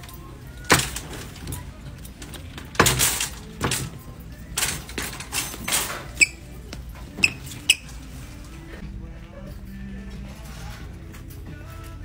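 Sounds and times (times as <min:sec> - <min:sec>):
shopping cart rattling and scraping: 0:00.0 - 0:08.8, 0:10.2 - 0:11.4
short sharp squeaks: 0:05.6 - 0:08.0.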